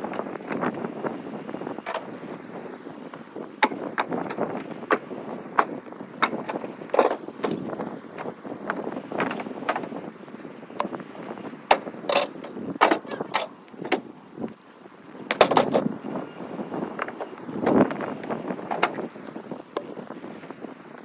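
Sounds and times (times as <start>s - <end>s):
firewood knocks and clunks: 15.3s - 15.9s.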